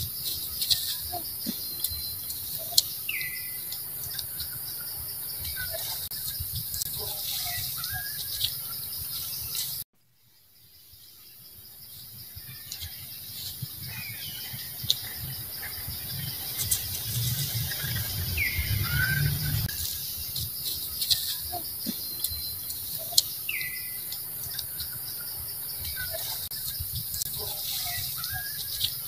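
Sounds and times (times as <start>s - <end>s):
bird chirps: 0.0s - 9.8s, 10.4s - 29.0s
short chirping calls: 0.0s - 9.8s, 10.7s - 29.0s
insects buzzing: 0.0s - 29.0s
low rumble: 14.4s - 19.8s.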